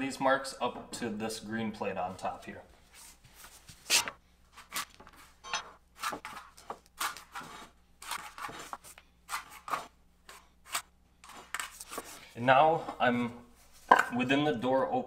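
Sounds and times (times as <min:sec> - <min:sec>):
metal square scraping on wood: 0:05.4 - 0:06.3.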